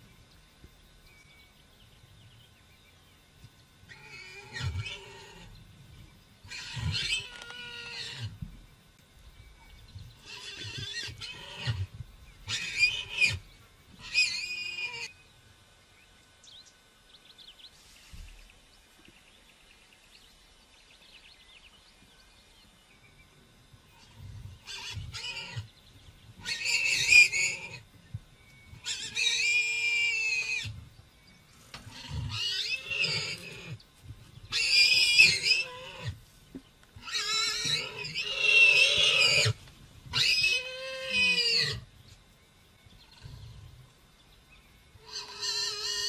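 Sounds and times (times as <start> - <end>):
warthog squealing: 6.5 - 8.3, 12.5 - 13.4, 14.0 - 15.1, 24.7 - 25.7, 26.4 - 27.8, 28.8 - 30.7, 31.9 - 33.8, 34.5 - 36.2, 37.0 - 39.6, 40.2 - 41.8, 45.0 - 46.0.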